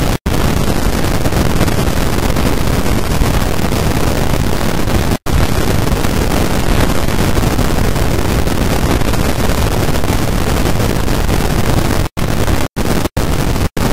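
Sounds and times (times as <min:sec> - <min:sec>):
loud static hiss: 0:00.0 - 0:13.9.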